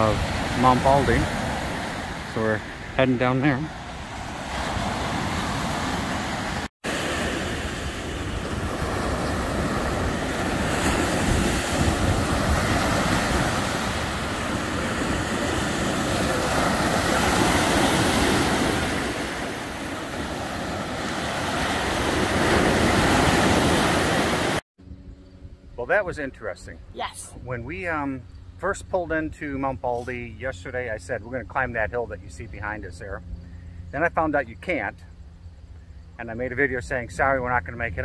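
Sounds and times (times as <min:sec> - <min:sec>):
surf washing onto beach: 0:00.0 - 0:24.6
wind buffeting microphone: 0:07.3 - 0:26.1.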